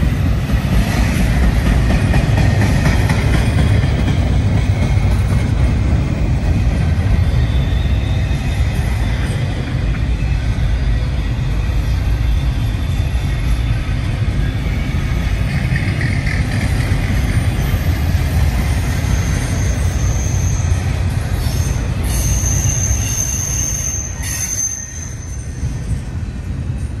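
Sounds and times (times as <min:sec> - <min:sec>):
freight train wheels rumbling: 0:00.0 - 0:27.0
high wheel squeal: 0:06.2 - 0:26.3.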